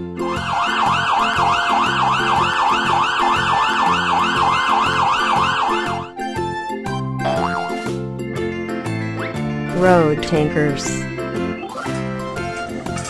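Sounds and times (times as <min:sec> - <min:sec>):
fire engine siren wailing: 0:00.1 - 0:06.2.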